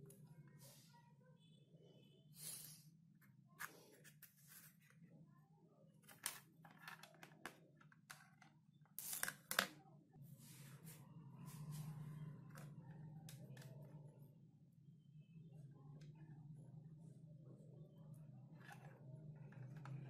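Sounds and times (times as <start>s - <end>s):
faint low hum: 9.7s - 20.0s.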